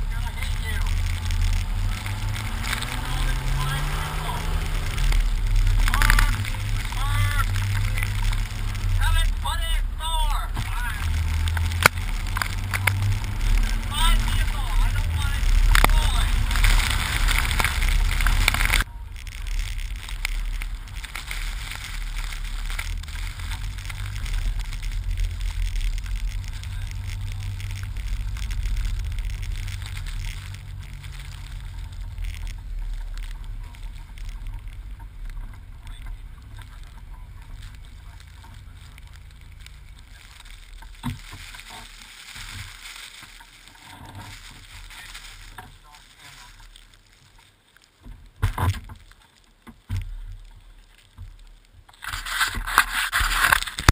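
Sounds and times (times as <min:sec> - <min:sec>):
loud rushing: 0:00.0 - 0:31.9
wind noise on microphone: 0:00.0 - 0:37.7, 0:49.8 - 0:53.9
car engine rumble: 0:00.0 - 0:53.9.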